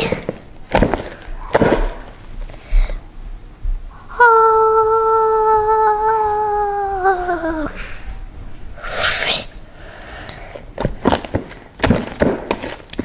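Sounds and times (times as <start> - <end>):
short loud hiss: 8.8 - 9.6.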